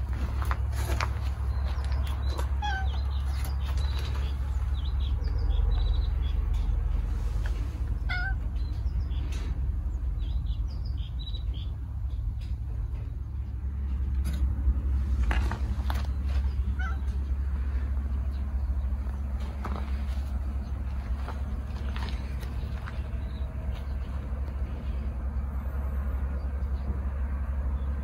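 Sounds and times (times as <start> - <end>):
steady low rumble: 0.0 - 28.0
cat meowing: 2.6 - 3.0, 8.0 - 8.4, 16.6 - 17.2.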